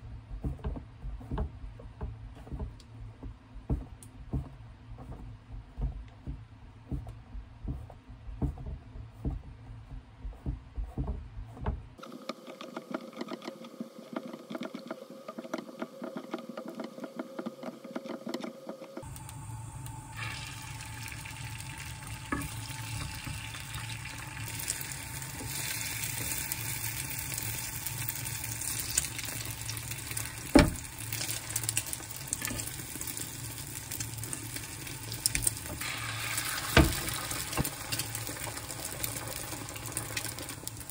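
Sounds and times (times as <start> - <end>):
knife chopping on wooden board: 10.2 - 11.9
egg sizzling in a hot pan: 19.1 - 40.9.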